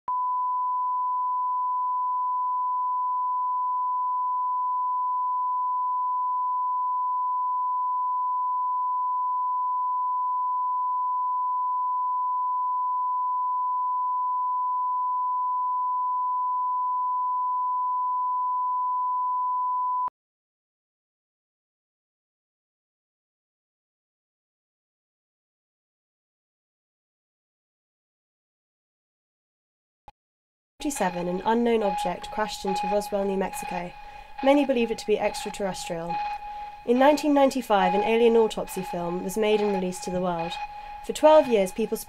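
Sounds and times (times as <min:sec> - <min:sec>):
steady pure test tone: 0:30.8 - 0:42.0.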